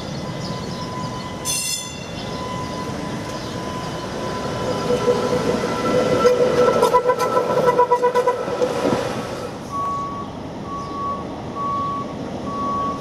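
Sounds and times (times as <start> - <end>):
streetcar rattling on rails: 0.0 - 13.0
electronic warning beep: 0.3 - 6.4, 9.7 - 13.0.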